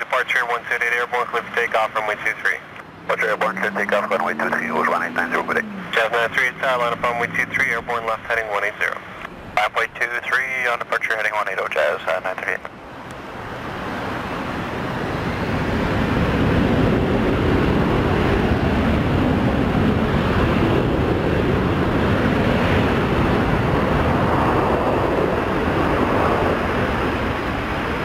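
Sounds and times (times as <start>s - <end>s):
jet engines spooling up: 1.3s - 9.3s.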